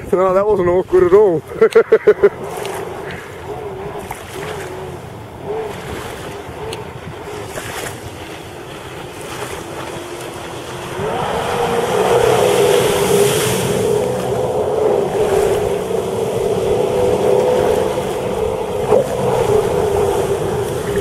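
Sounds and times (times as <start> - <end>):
jet ski engine droning: 0.0 - 21.0
rush of water spray: 7.4 - 21.0.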